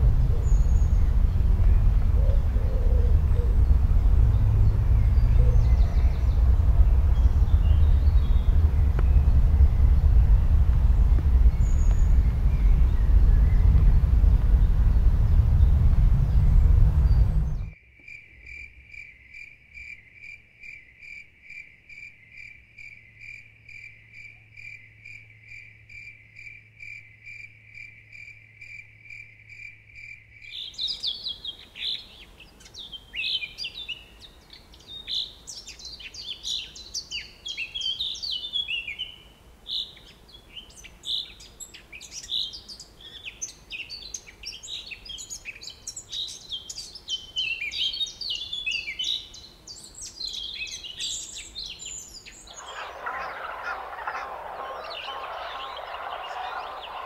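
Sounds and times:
birds chirping: 0:00.0 - 0:17.8, 0:39.8 - 0:57.0
harsh noisy call: 0:52.5 - 0:57.0.

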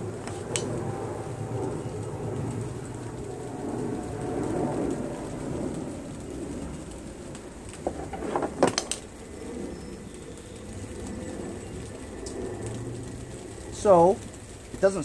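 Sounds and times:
steady rain falling: 0:00.0 - 0:15.0
sharp clicks and knocks: 0:07.7 - 0:09.1.

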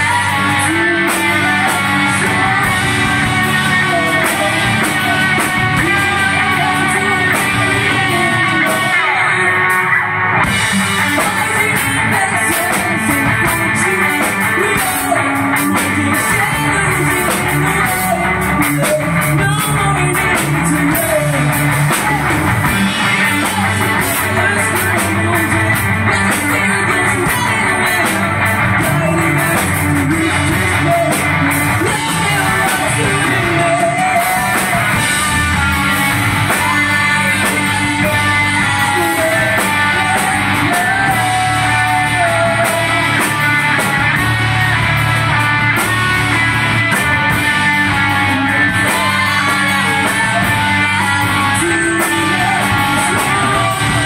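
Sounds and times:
drum kit: 0:00.0 - 0:54.0
electric bass: 0:00.0 - 0:54.0
electric guitars: 0:00.0 - 0:54.0
person singing: 0:00.0 - 0:54.0.

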